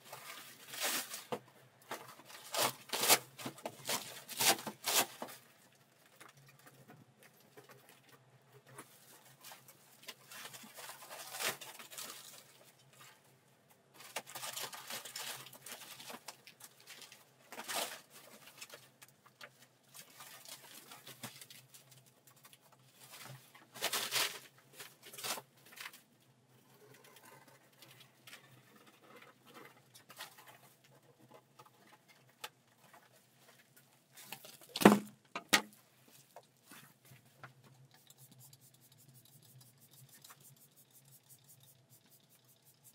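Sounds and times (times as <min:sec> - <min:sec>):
hands rustling materials: 0:35.7 - 0:42.9.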